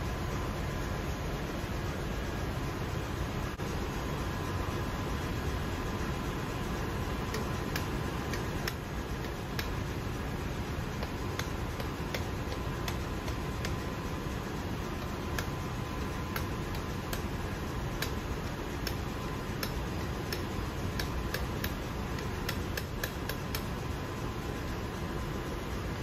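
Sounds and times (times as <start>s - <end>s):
steady hum: 0.0s - 26.0s
hammer tapping metal: 7.1s - 23.7s.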